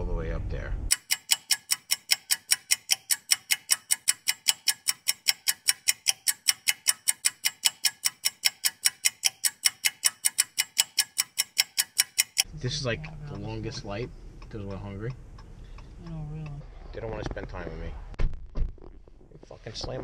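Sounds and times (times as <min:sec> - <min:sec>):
rapid even ticking: 0:00.9 - 0:12.6.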